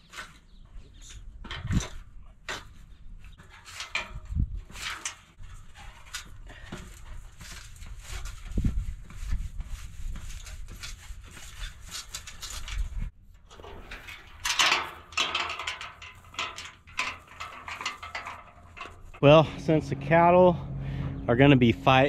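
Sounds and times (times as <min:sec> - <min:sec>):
steel panels clanking and scraping: 0:00.0 - 0:08.6, 0:10.2 - 0:22.0
metal panel knocks and creaks: 0:13.4 - 0:19.3.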